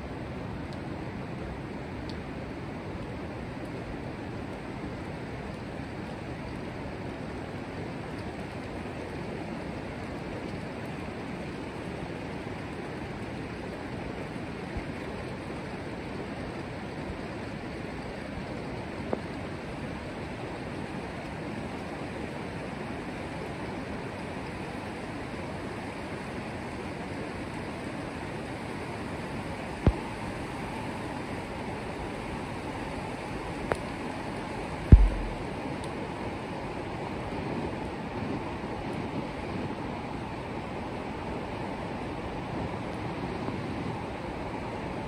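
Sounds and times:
fast river rushing: 30.5 - 35.6
brief knocks: 34.9 - 35.5.

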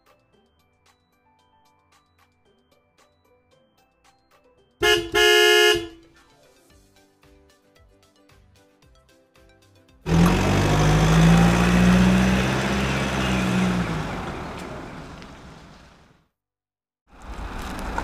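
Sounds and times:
vehicle engine humming: 4.8 - 6.0, 10.1 - 16.1.

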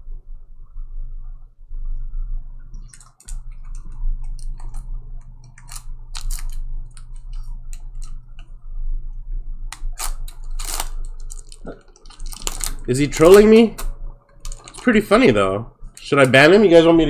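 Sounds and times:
low electrical hum: 0.0 - 17.0
crinkly rustles of handling: 10.0 - 16.3.

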